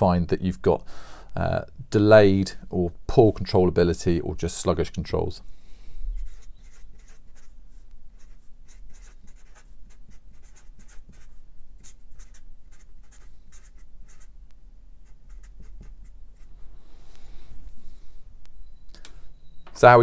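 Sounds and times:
marker pen scratching on paper: 0:06.1 - 0:14.4, 0:15.0 - 0:16.7.

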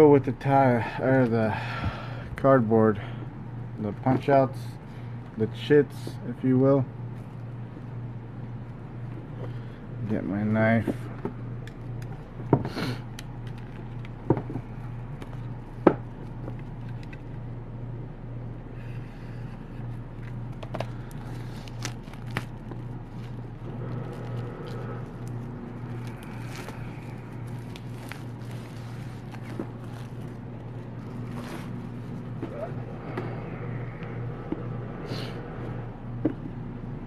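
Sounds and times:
steady low hum: 0:00.0 - 0:37.0
plastic wrap crinkling: 0:20.8 - 0:32.5.

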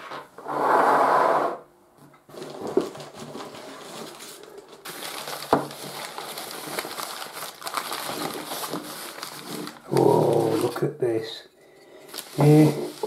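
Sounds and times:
packing paper crackling and rustling: 0:02.3 - 0:10.9, 0:12.1 - 0:13.0.

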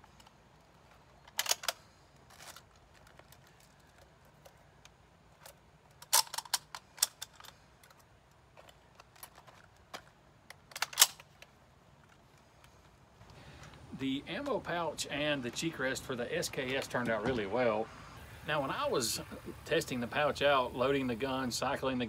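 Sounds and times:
rifle bolt metallic clacks: 0:01.2 - 0:01.8, 0:05.4 - 0:11.5.

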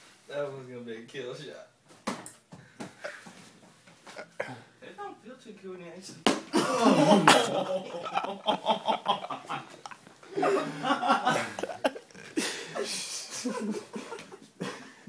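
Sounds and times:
sharp smack: 0:06.2 - 0:06.5
young men laughing: 0:06.5 - 0:15.0.

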